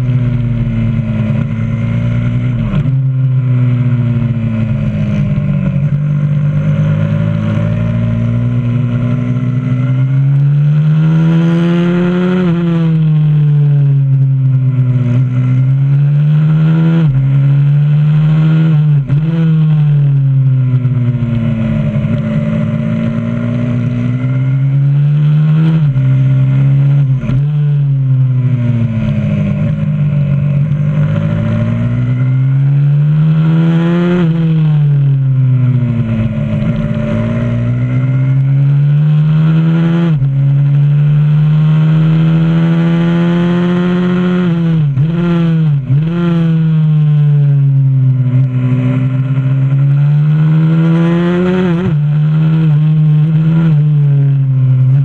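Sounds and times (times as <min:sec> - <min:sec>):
pit bike engine revving: 0:15.1 - 0:55.0.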